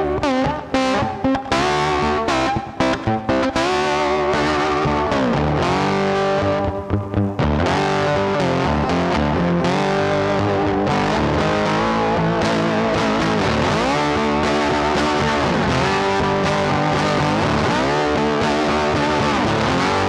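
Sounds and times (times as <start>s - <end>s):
rock music with electric guitar: 0.0s - 20.0s.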